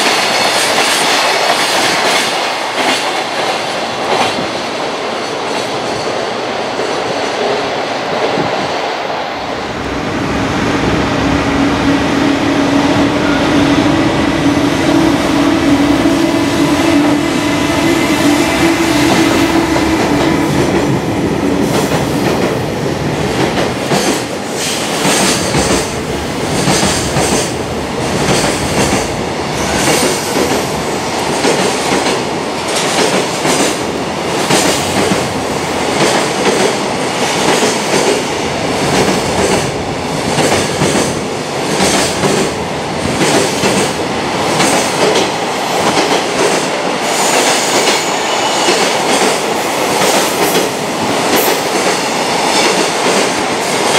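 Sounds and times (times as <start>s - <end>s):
wheels clickety-clack on rail joints: 0.0s - 4.7s, 18.6s - 53.9s
freight train rolling past: 0.0s - 53.9s.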